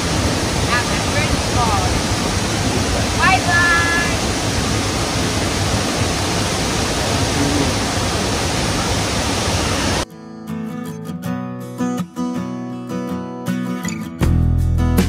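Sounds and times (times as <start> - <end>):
waterfall roaring: 0.0 - 10.0
strummed acoustic guitar music: 10.0 - 15.0.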